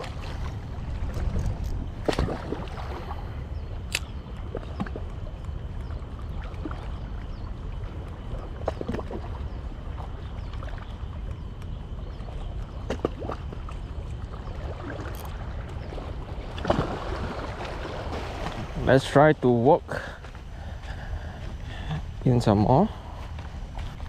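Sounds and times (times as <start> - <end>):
wind noise on microphone: 0.0 - 4.9.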